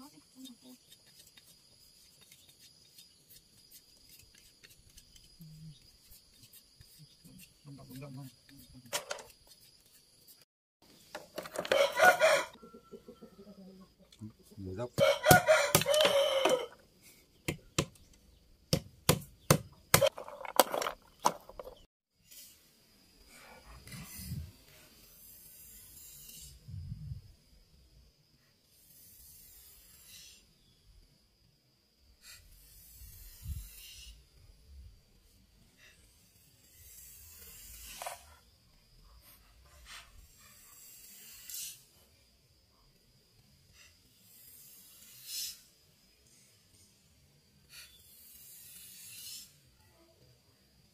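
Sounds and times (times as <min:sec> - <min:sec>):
knife scraping bamboo stick: 0:00.4 - 0:10.5, 0:25.1 - 0:26.6, 0:35.8 - 0:38.4, 0:47.7 - 0:49.6
knife chopping bamboo on board: 0:15.0 - 0:16.2, 0:18.7 - 0:20.1.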